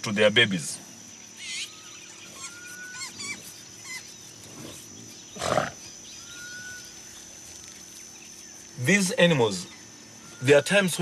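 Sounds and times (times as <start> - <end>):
high insect buzz: 0.0 - 11.0
birds whistling and chirping: 1.3 - 11.0
buffalo grunt: 4.5 - 5.9.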